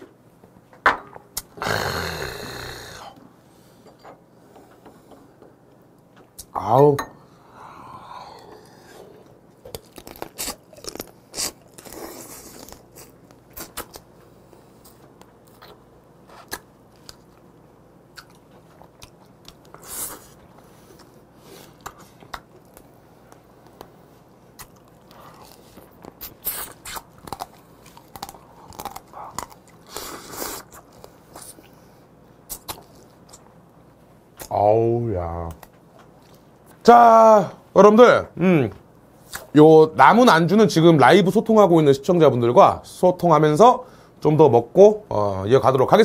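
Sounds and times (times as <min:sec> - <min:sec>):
person chewing crab: 0:08.2 - 0:14.1, 0:14.8 - 0:23.9, 0:24.5 - 0:31.8
crab shell crunching: 0:09.6 - 0:14.0, 0:24.6 - 0:31.5.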